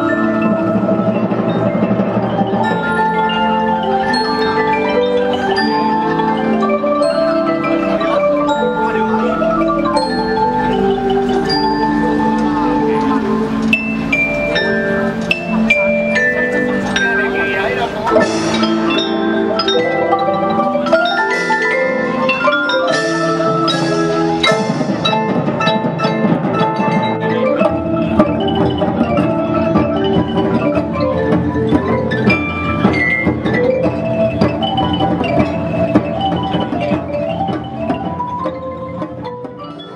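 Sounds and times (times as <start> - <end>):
glockenspiel notes: 0.0 - 39.9
marimbas and xylophones playing: 0.0 - 39.9.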